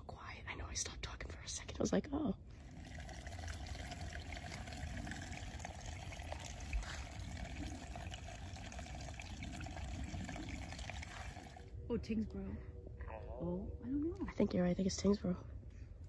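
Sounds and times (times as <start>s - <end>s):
trickling water: 2.5s - 11.7s.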